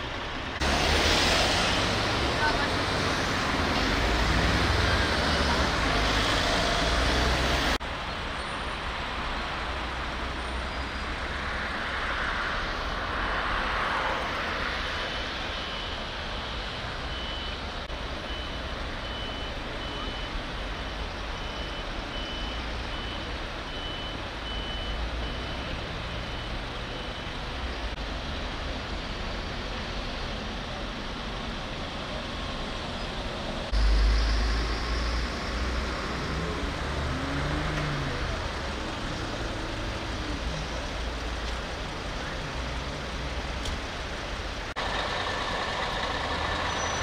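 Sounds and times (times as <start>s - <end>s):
vehicle engine noise: 0.0s - 47.0s
reversing beeper: 17.0s - 17.6s, 18.2s - 27.5s.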